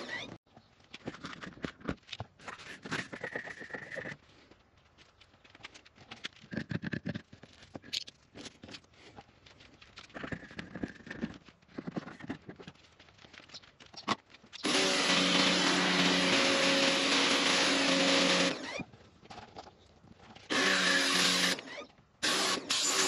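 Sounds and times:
pressure washer motor hum: 0:14.6 - 0:18.7.

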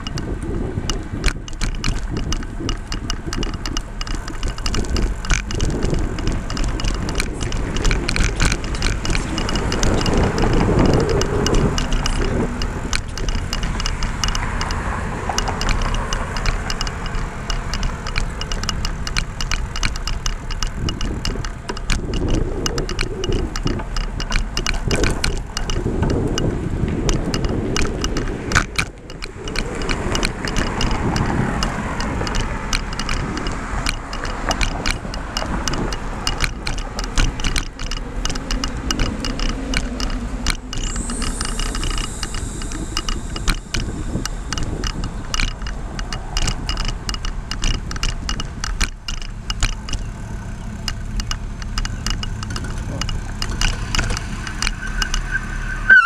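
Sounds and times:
passing motor traffic: 0:00.0 - 0:56.0
road and wind noise: 0:00.0 - 0:56.0
small rattling clicks: 0:00.0 - 0:56.0.

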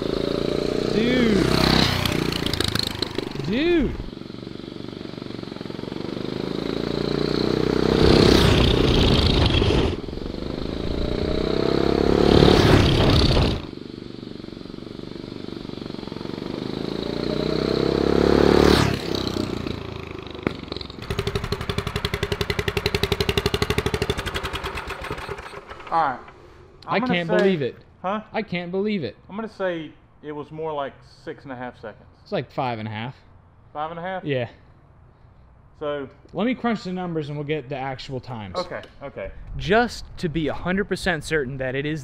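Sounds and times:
engine accelerating at full throttle: 0:00.0 - 0:04.2, 0:04.8 - 0:13.8, 0:14.7 - 0:25.8
engine idling: 0:19.8 - 0:26.5.

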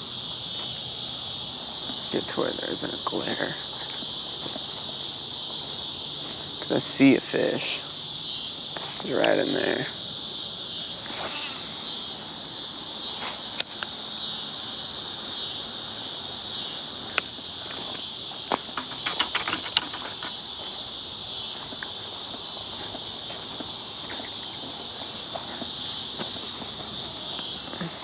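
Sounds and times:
insects chirping: 0:00.0 - 0:28.0
sharp clicks: 0:18.7 - 0:20.4.

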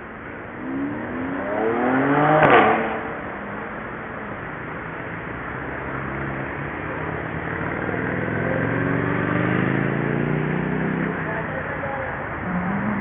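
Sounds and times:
city street traffic: 0:00.0 - 0:13.0
vehicle engine rising in pitch: 0:12.4 - 0:13.0.

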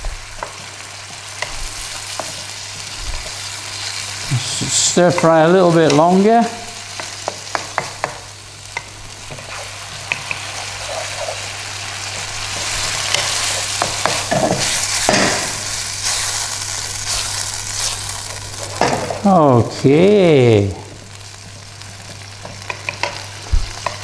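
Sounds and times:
stir fry sizzling in pan: 0:00.0 - 0:24.0
spatula scraping and tapping pan: 0:06.9 - 0:11.4, 0:12.1 - 0:16.4, 0:21.4 - 0:24.0.

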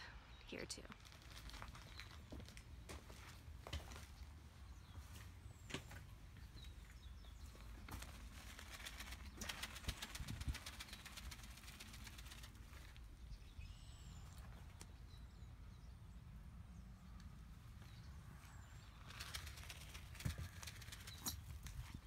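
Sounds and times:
small birds chirping: 0:00.0 - 0:22.0
rustling and crackles on straw: 0:00.9 - 0:13.5, 0:18.3 - 0:22.0.

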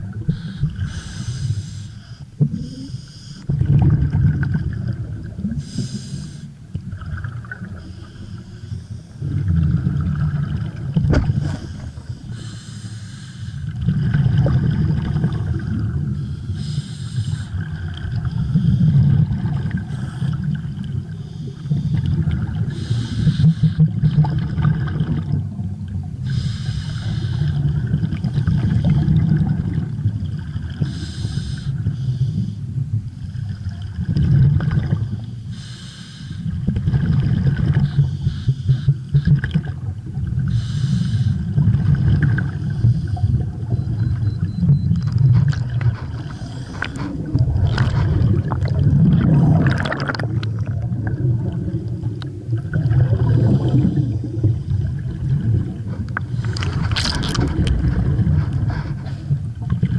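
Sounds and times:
exhaled bubbles rumbling: 0:00.0 - 0:12.6, 0:13.2 - 0:35.7, 0:36.4 - 0:59.9
regulator inhalation hiss: 0:00.4 - 0:03.4, 0:05.6 - 0:06.5, 0:11.5 - 0:13.6, 0:16.4 - 0:17.5, 0:26.3 - 0:27.5, 0:35.5 - 0:36.5, 0:40.5 - 0:41.4.

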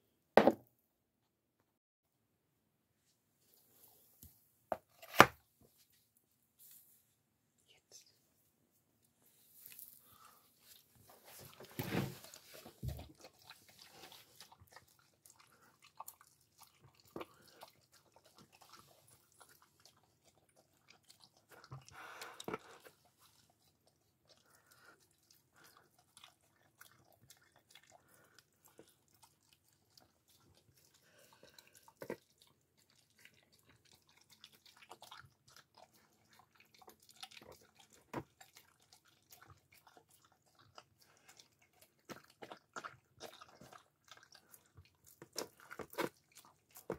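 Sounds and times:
dog chewing food: 0:11.1 - 0:46.9.

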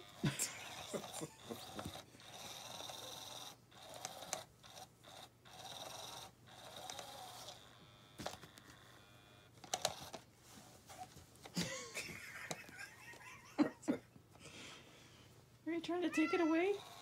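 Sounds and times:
small electric motor whirring: 0:00.1 - 0:10.2, 0:16.1 - 0:17.0.

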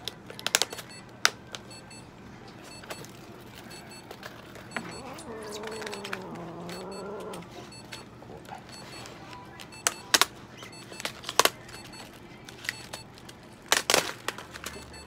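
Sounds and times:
cat yowling: 0:04.8 - 0:07.5.

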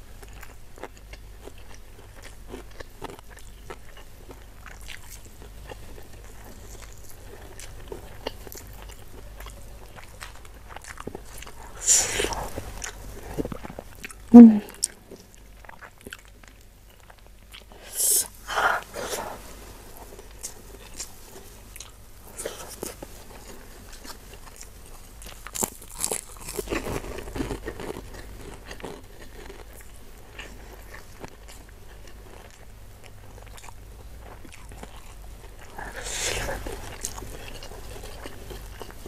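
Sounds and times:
wet chewing: 0:00.2 - 0:19.4, 0:20.0 - 0:39.0.

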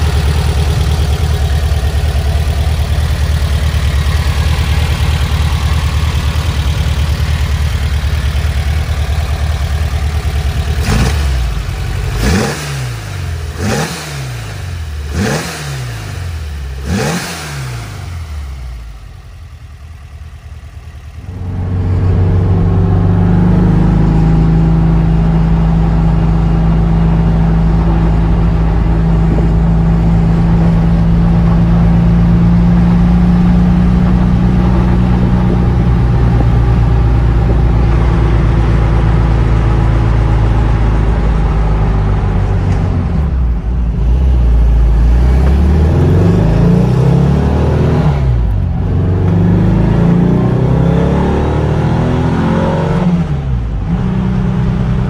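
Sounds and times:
car engine accelerating from inside: 0:10.8 - 0:18.8, 0:21.2 - 0:55.0.

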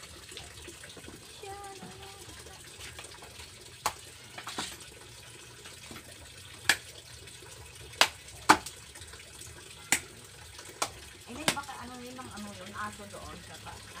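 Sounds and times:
knife chopping fish on board: 0:08.0 - 0:08.7.

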